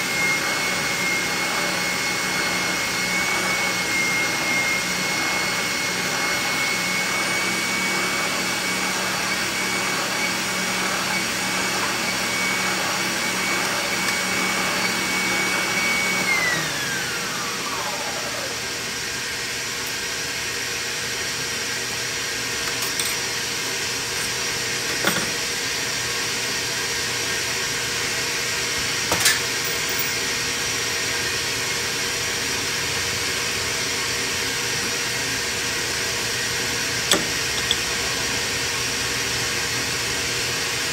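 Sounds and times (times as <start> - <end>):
sander motor whining: 0.0 - 20.3
shop vacuum running: 0.0 - 40.9.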